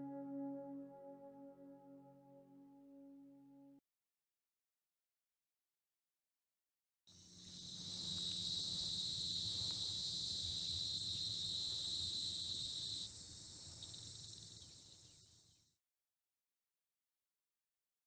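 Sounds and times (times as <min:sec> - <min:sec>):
insects chirring: 0:07.2 - 0:15.2.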